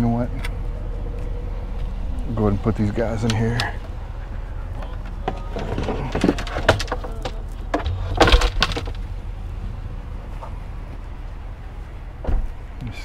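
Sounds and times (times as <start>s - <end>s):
steady low hum: 0.0s - 13.0s
signs knocking and scraping: 3.2s - 9.2s.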